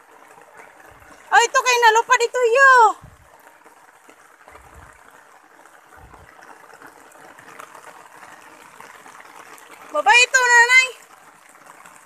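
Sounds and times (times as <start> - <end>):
rain pattering on ground: 0.0 - 12.0
low rumbles on microphone: 3.0 - 3.3, 5.9 - 6.4.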